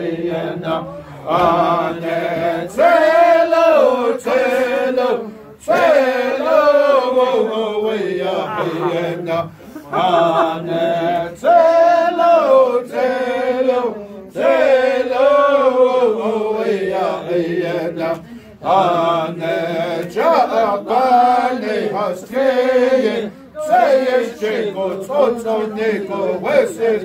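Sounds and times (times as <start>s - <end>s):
men singing chanted song: 0.0s - 27.0s.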